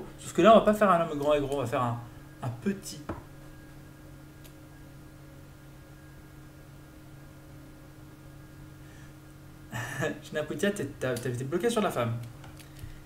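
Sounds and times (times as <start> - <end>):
steady electrical hum: 0.0 - 13.0.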